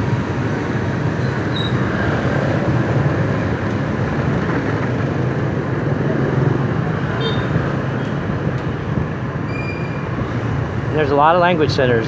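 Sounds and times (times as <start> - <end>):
motorbike engine and road noise: 0.0 - 12.0.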